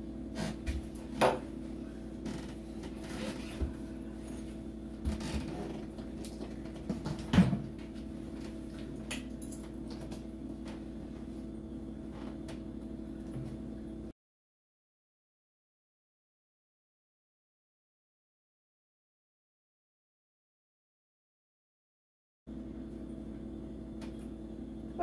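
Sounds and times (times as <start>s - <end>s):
appliance hum: 0.0s - 14.2s, 22.5s - 25.0s.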